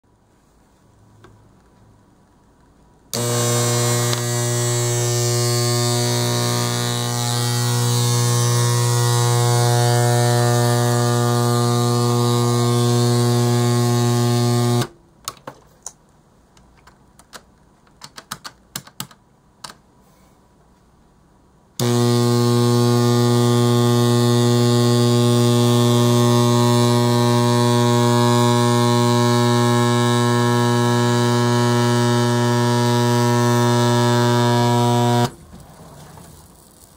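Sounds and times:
loud electrical mains buzz: 3.1 - 15.0, 21.8 - 35.4.

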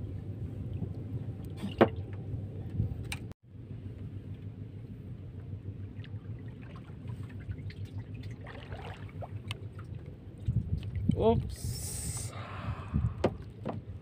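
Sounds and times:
steady low rumble: 0.0 - 14.0
water lapping against boat hull: 5.8 - 11.6, 13.0 - 14.0.

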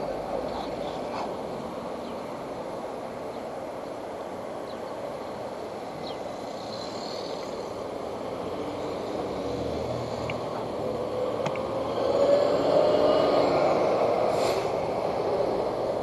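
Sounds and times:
vehicle noise: 0.0 - 16.0.

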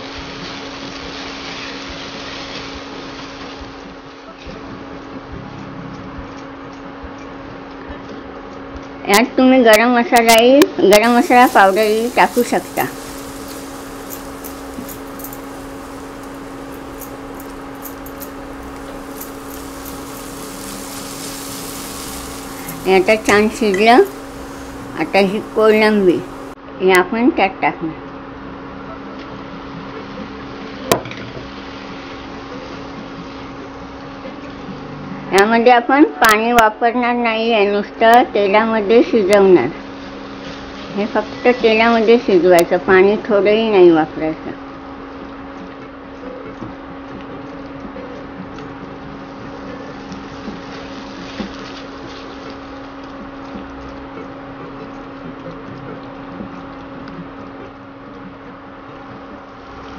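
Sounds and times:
masala sizzling in oil: 0.0 - 4.1, 11.0 - 26.6, 49.0 - 55.4, 59.3 - 59.9
prawns stirred in pan: 11.0 - 26.6
steady low hum: 11.1 - 26.6.

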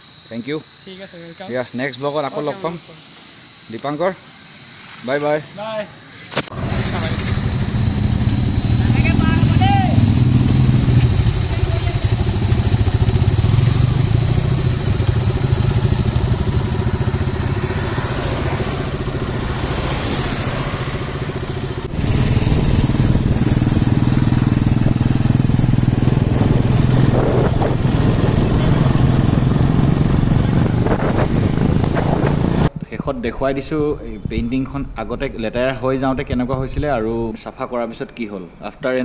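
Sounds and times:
road and wind noise: 4.4 - 39.0
motorcycle engine cruising: 6.5 - 32.8.

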